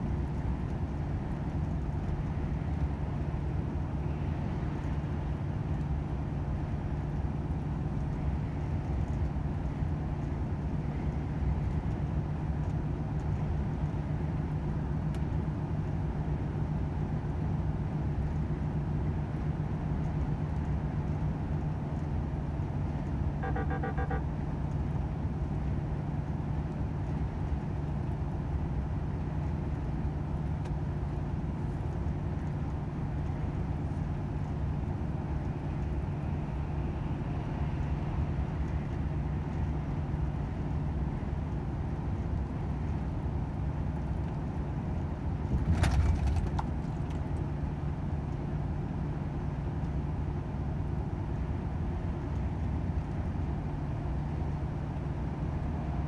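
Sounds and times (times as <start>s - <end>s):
truck diesel engine drone: 0.0s - 45.5s
road noise: 0.0s - 56.0s
short pulsing beep: 23.4s - 24.2s.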